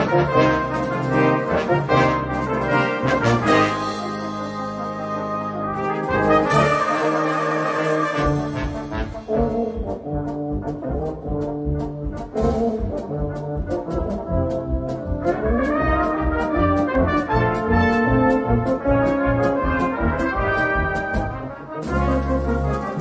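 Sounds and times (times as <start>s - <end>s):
brass band playing a march: 0.0s - 23.0s
snare and bass drum beat: 8.2s - 23.0s.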